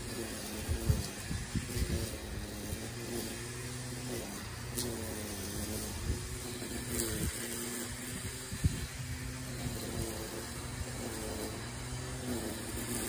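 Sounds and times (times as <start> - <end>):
engine running low: 0.0 - 13.0.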